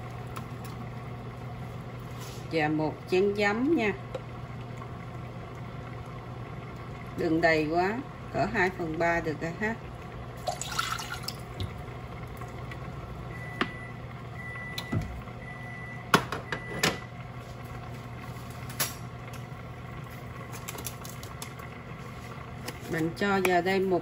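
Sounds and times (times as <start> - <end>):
steady low hum: 0.0 - 24.0
liquid pouring into saucepan: 10.3 - 12.6.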